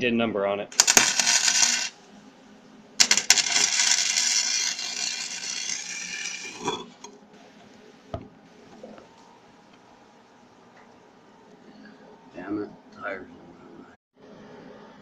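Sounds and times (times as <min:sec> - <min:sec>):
arc welder crackling and sizzling: 0:00.7 - 0:02.1, 0:03.0 - 0:07.1.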